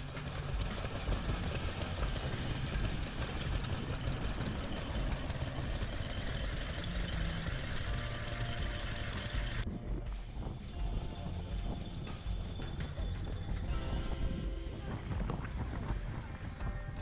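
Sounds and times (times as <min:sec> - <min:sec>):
stationary engines knocking: 0:00.0 - 0:17.0.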